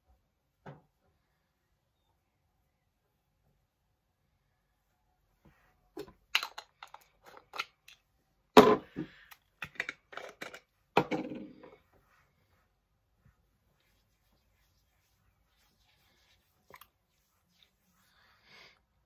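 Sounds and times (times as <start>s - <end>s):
cosmetics containers clicking and tapping: 6.0s - 8.0s, 9.6s - 11.1s.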